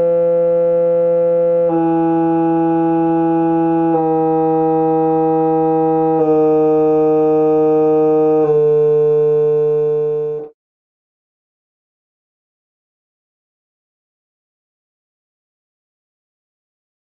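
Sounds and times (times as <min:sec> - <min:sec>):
organ-like test tone: 0:00.0 - 0:10.5.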